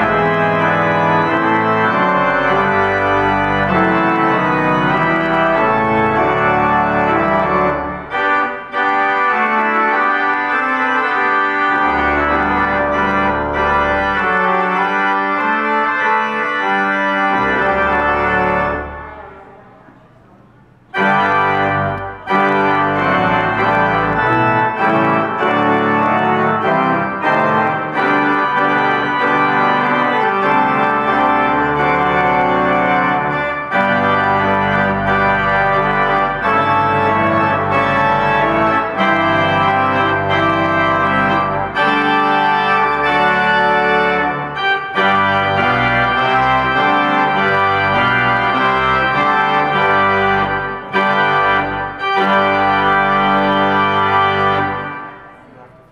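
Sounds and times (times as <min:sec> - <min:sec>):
pipe organ chords: 0:00.0 - 0:55.9.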